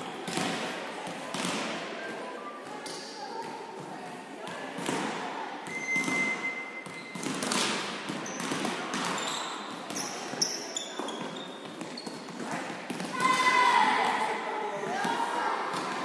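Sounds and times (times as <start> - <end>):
volleyball struck and bouncing: 0.2 - 1.8, 4.5 - 10.4
shoes squeaking on floor: 5.6 - 12.7.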